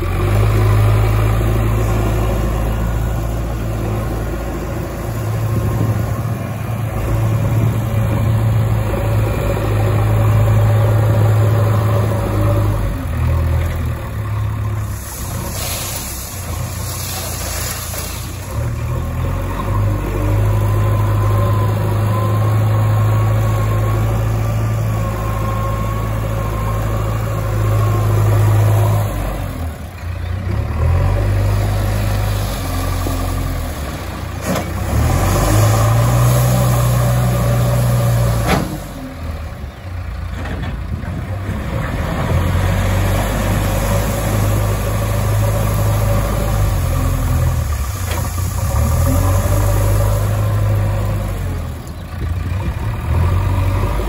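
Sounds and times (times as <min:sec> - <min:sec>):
diesel engine revving: 0:00.0 - 0:54.0
loader bucket working gravel: 0:00.0 - 0:54.0.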